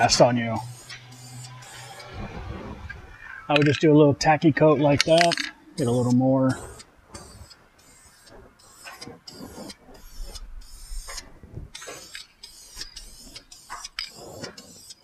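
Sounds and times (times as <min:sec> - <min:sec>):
aerosol can spray bursts: 0:00.0 - 0:02.1, 0:05.8 - 0:15.0.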